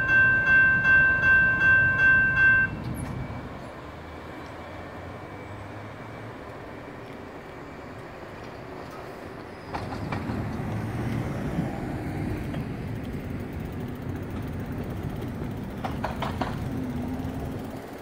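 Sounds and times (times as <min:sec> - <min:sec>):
train rolling rumble: 0:00.0 - 0:18.0
wheel clicks over rail joints: 0:12.4 - 0:18.0.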